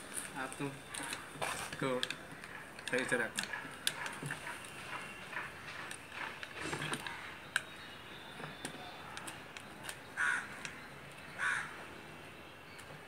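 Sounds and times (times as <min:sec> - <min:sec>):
rope clicking and rustling on wood: 0:00.0 - 0:07.7
loud bird calls: 0:02.2 - 0:12.8.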